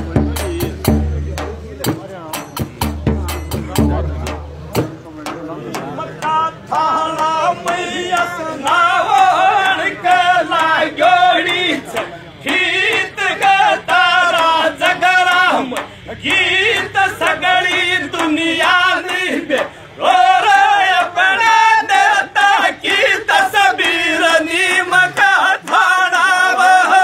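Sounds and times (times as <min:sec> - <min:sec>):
frame drum strokes: 0:00.0 - 0:06.3
men singing folk song together: 0:05.5 - 0:27.0.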